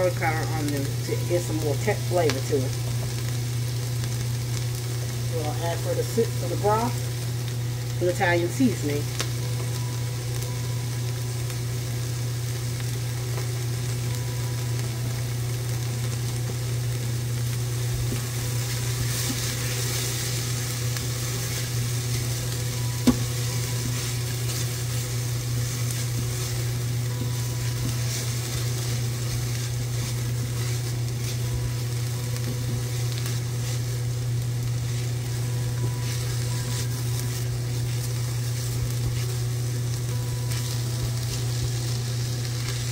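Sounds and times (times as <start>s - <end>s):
low hum: 0.0s - 42.9s
onions sizzling in a pot: 0.0s - 42.9s
spatula stirring: 17.9s - 42.9s.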